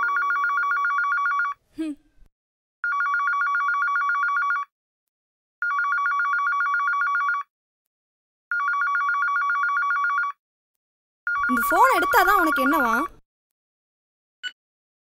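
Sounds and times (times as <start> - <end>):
phone ringing with two-tone trill: 0.0 - 1.6, 2.8 - 4.7, 5.6 - 7.5, 8.5 - 10.4, 11.3 - 13.2.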